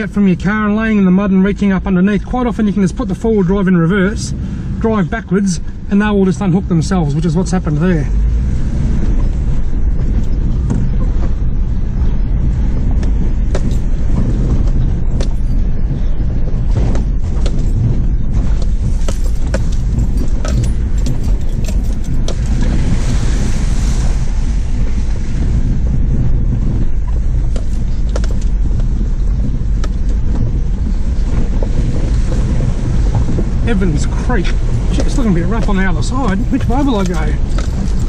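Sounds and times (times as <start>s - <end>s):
engine and road noise in cab: 0.0s - 38.0s
knocks and rattles over ruts: 0.0s - 38.0s.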